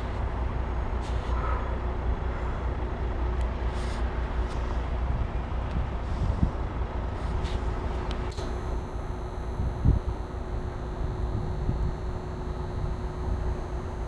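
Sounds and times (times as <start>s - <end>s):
freight train rumbling on rails: 0.0s - 8.4s.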